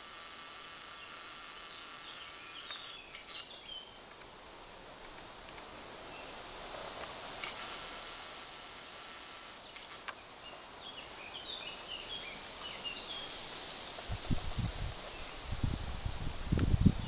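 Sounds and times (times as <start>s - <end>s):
steady high hiss: 0.0s - 17.0s
small bird chirping: 0.8s - 4.0s, 9.6s - 13.5s.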